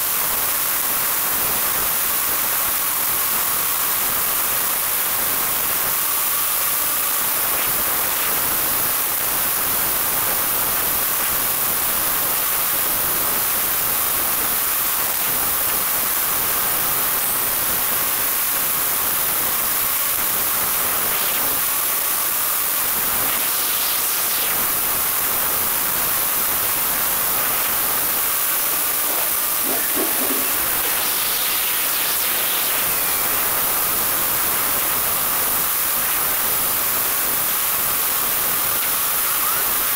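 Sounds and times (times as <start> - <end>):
faint steady motor whine: 0.0 - 39.9.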